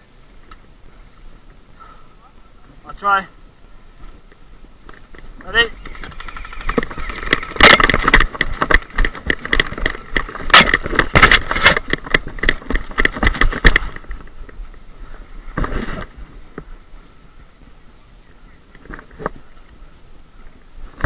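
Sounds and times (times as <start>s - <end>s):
running footsteps in undergrowth: 3.6s - 21.0s
gear clattering: 5.8s - 14.1s.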